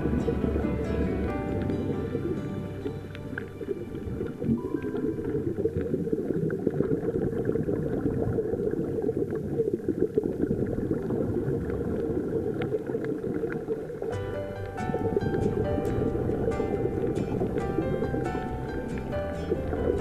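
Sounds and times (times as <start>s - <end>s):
muffled underwater bubbling: 0.0s - 20.0s.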